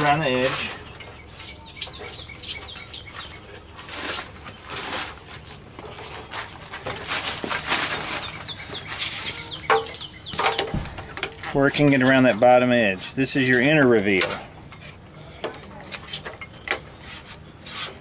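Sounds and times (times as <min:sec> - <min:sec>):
small birds chirping: 0:00.0 - 0:04.8, 0:07.7 - 0:13.9
rubber rubbing and scuffing: 0:02.4 - 0:10.4, 0:17.0 - 0:18.0.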